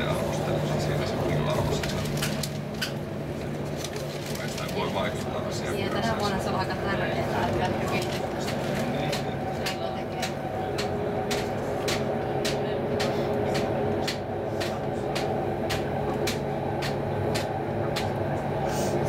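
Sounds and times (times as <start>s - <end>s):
train motor hum and rumble: 0.0s - 19.0s.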